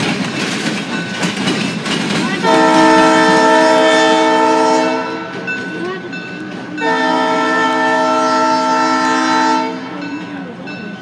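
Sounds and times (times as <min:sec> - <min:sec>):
train air horn blasts: 0:02.4 - 0:05.5, 0:06.8 - 0:10.1.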